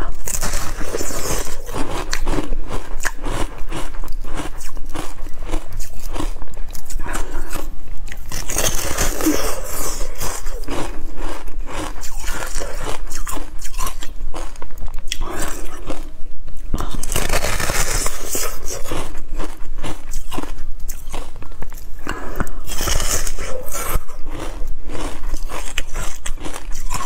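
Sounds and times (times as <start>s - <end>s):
crunching and chewing ice cream bar: 0.0s - 27.0s.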